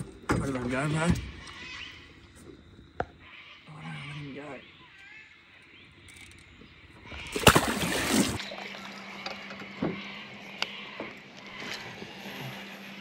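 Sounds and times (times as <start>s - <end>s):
faint steady hum: 0.0s - 13.0s
fish splashing in water: 7.3s - 8.8s.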